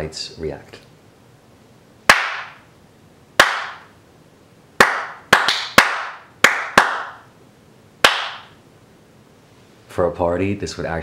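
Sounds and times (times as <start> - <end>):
hand claps echoing in a room: 2.1 - 2.7, 3.4 - 3.9, 4.8 - 7.3, 8.0 - 8.6.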